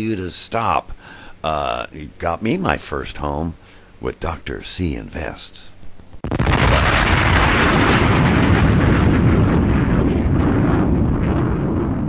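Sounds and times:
loud steady deep rumbling noise: 0:06.2 - 0:12.0.

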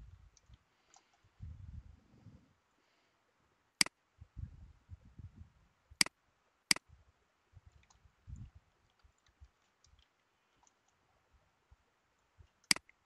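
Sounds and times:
computer mouse clicks: 0:00.4 - 0:01.2, 0:08.9 - 0:11.0
soft low thumps: 0:01.4 - 0:02.0, 0:04.2 - 0:05.6, 0:07.6 - 0:08.6.

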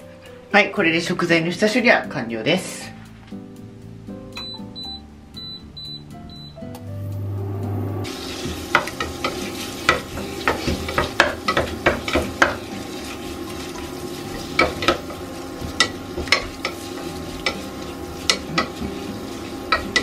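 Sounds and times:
chicken frying in butter: 0:08.1 - 0:20.0
spatula scraping pot: 0:08.1 - 0:20.0.

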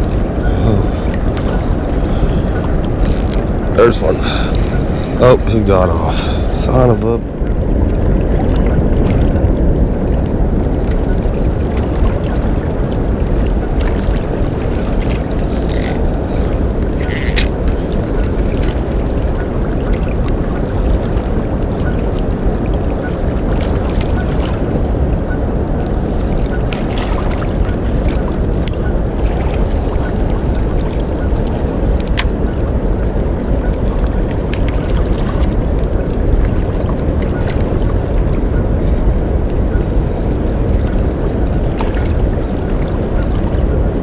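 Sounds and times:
wind rumbling on microphone: 0:00.0 - 0:44.0
water rushing from spillway: 0:03.0 - 0:07.2.

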